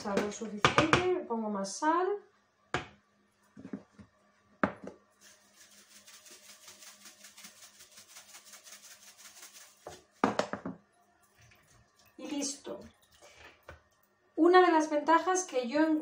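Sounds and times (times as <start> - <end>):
salt shaken from plastic container: 5.2 - 10.2.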